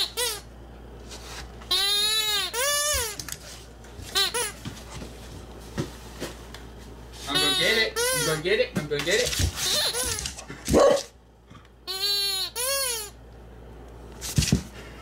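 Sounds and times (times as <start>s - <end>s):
squeaky toy squeaking: 1.7s - 3.2s, 7.4s - 8.4s, 9.6s - 10.3s, 11.9s - 13.2s.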